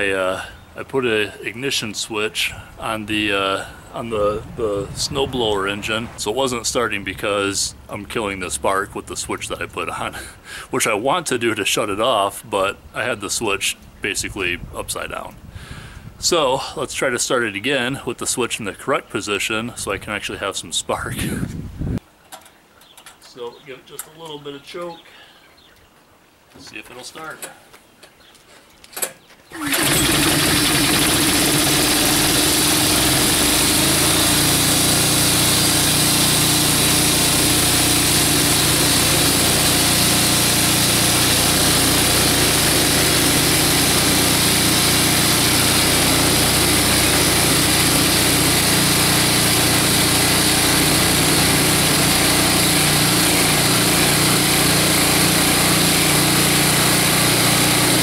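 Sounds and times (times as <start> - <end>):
small gas engine starting and running: 29.5 - 58.0
air compressor pump: 29.6 - 58.0.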